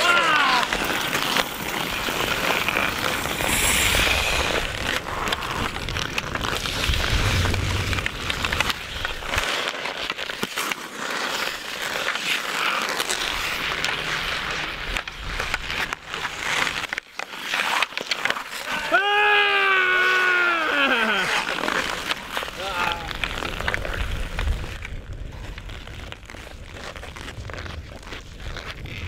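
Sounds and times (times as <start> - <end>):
hockey sticks tapping puck: 0.0 - 3.5, 8.6 - 19.0, 20.1 - 24.8
skate blades scraping ice: 0.0 - 29.0
low rumble: 2.9 - 9.4.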